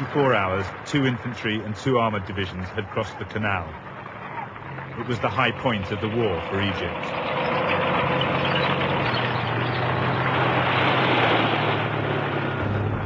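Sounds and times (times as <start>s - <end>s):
tank engine running: 0.0s - 13.0s
loud rushing noise: 5.0s - 13.0s.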